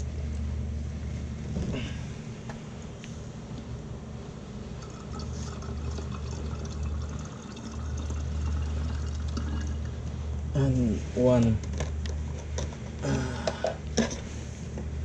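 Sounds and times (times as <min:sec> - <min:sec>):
liquid pouring into container: 0:04.8 - 0:10.1.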